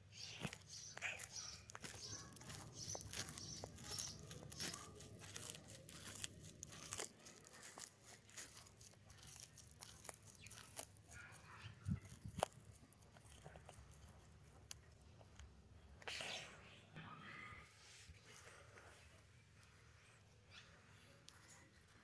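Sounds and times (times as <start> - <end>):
tortoise crunching leaves: 0.0 - 15.6.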